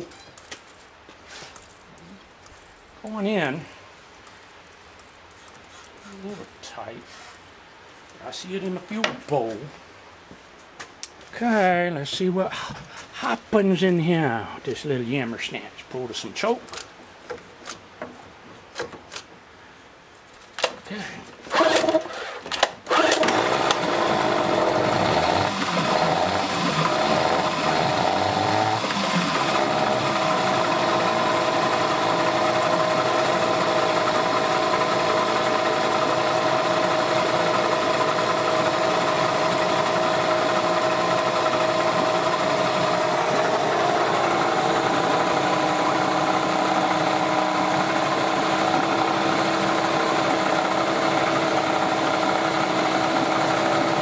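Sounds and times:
outboard motor pull-started and running: 0:21.5 - 0:54.0.

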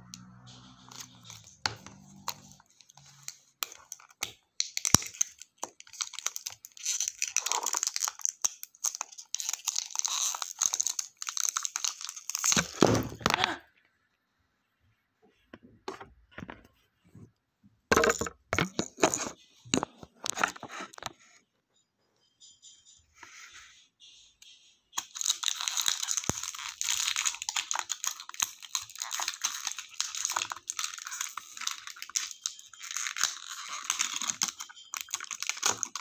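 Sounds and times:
plastic wrap crinkling: 0:00.8 - 0:13.5, 0:25.0 - 0:36.0.

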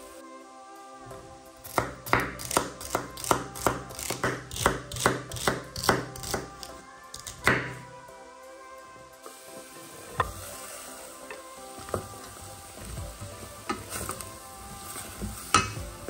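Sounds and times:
background music: 0:00.0 - 0:16.0
knife chopping celery on board: 0:01.7 - 0:06.5.

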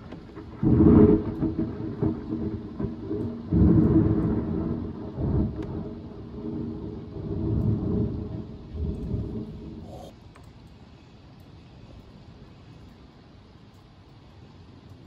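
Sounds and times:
thunder peal and rumble: 0:00.0 - 0:09.9.

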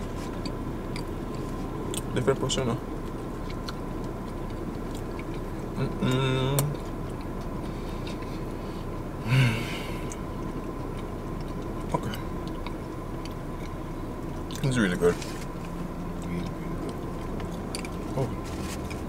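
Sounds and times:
man chewing: 0:00.0 - 0:19.0
short breathy vocal sound: 0:09.2 - 0:10.1
man humming mmm: 0:09.2 - 0:10.2.

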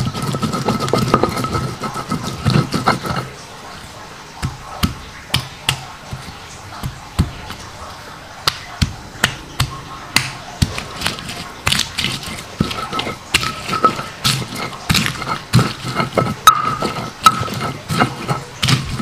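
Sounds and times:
stone pestle knocking on stone: 0:00.0 - 0:03.3, 0:08.5 - 0:19.0.

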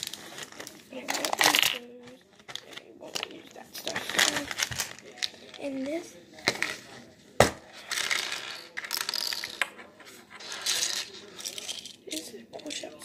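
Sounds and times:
small objects clinking on wooden table: 0:07.8 - 0:09.8.

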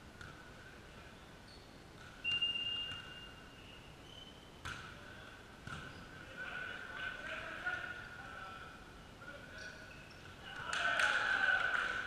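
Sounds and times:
referee's whistle: 0:02.2 - 0:04.4.

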